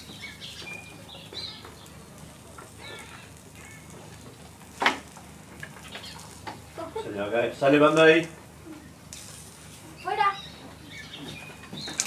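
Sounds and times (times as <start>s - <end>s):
bird chirps: 0.0s - 1.9s, 10.0s - 12.0s.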